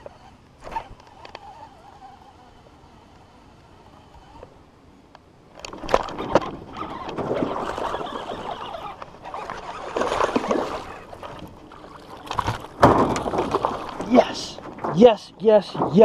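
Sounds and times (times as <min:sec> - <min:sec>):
sharp knocks: 0:12.4 - 0:14.0.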